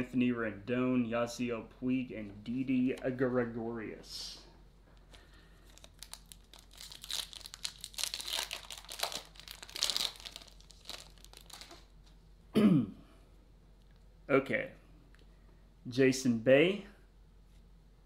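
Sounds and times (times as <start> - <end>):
foil wrapper tearing and crinkling: 5.6 - 11.8.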